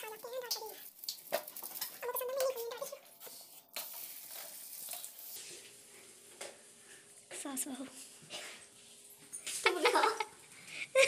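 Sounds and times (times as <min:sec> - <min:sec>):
bread sizzling: 0:00.0 - 0:07.3
spoon scraping on griddle: 0:00.5 - 0:05.7.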